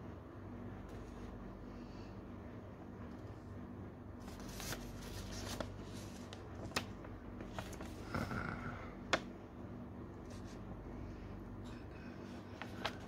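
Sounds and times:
low steady hum: 0:00.0 - 0:13.0
paper rustling and crackling: 0:04.2 - 0:08.1, 0:12.3 - 0:13.0.

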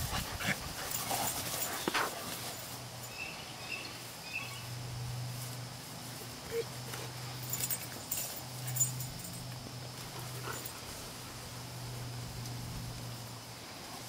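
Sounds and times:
dogs scuffling on grass: 0:00.0 - 0:14.0.

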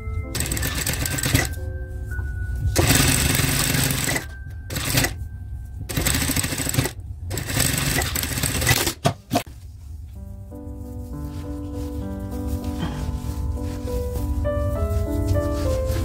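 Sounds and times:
sewing machine stitching: 0:00.4 - 0:01.5, 0:02.8 - 0:05.2, 0:05.9 - 0:09.0.

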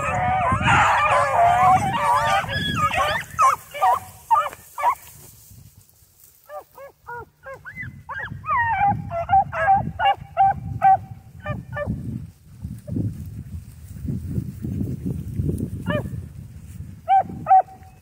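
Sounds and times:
hounds yelping and baying: 0:00.0 - 0:05.1, 0:06.4 - 0:12.0, 0:15.8 - 0:16.1, 0:17.0 - 0:18.0.

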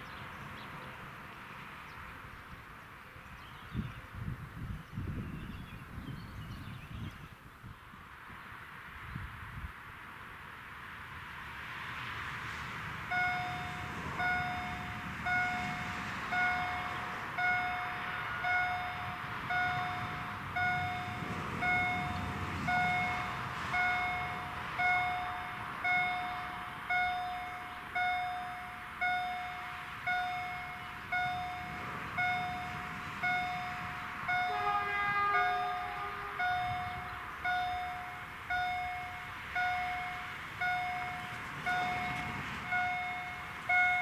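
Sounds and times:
train horn: 0:13.1 - 0:27.7, 0:30.6 - 0:44.0
level crossing warning gong: 0:13.1 - 0:44.0.

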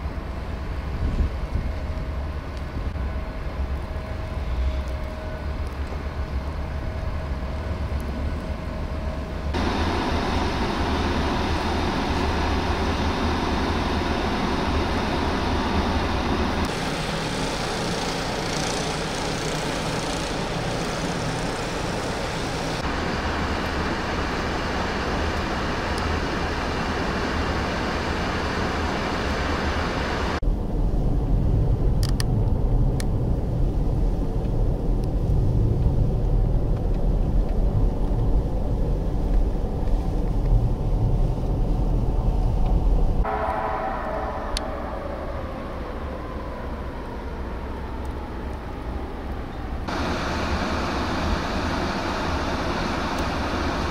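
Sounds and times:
blizzard wind: 0:00.0 - 0:53.9
street traffic: 0:16.3 - 0:23.4
heavy low rumble: 0:30.2 - 0:48.8.

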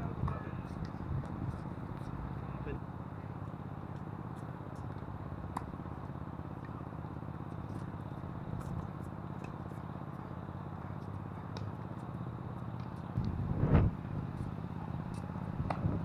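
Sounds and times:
rackets striking tennis ball: 0:04.8 - 0:06.8, 0:15.1 - 0:16.0
wind buffeting microphone: 0:13.2 - 0:14.4.

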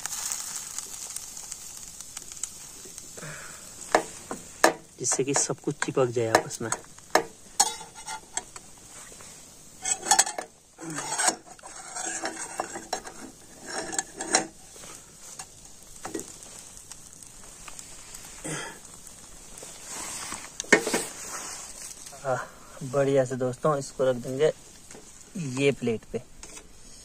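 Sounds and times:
faint sizzle: 0:00.0 - 0:27.0
utensil scraping a pan: 0:03.8 - 0:16.5, 0:19.6 - 0:22.1.

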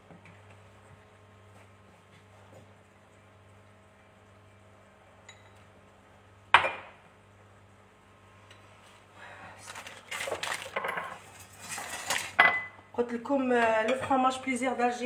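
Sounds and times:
low steady hum: 0:00.0 - 0:15.0
dishes and utensils clattering: 0:10.2 - 0:12.8.

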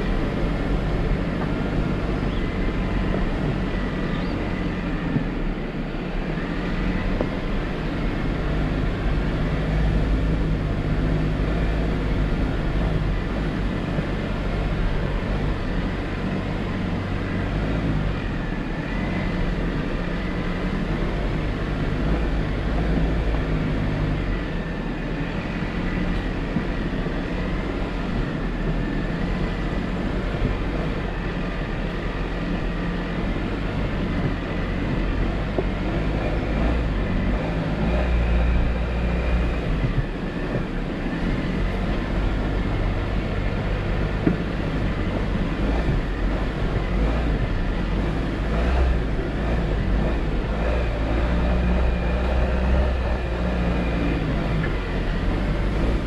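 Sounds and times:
car engine drone: 0:00.0 - 0:56.0
tyre and road noise: 0:00.0 - 0:56.0.

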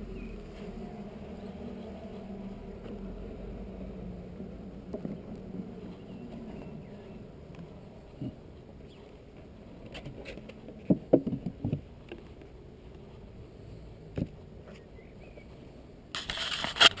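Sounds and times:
loud rustle: 0:16.1 - 0:17.0.

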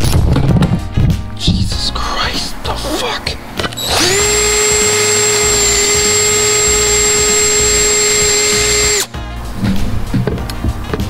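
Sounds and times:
cordless drill drilling metal: 0:03.8 - 0:09.1.

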